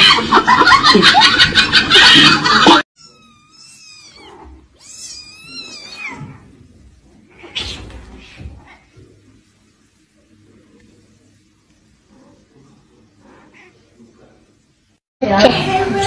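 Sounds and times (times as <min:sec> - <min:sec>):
voices and laughter: 0:00.0 - 0:02.8
cat mewing cries: 0:03.0 - 0:06.5
cat hissing: 0:03.0 - 0:06.6, 0:07.2 - 0:09.0.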